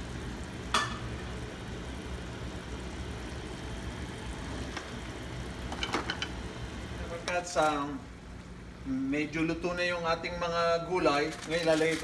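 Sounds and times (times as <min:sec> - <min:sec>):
low kitchen hum: 0:00.0 - 0:12.0.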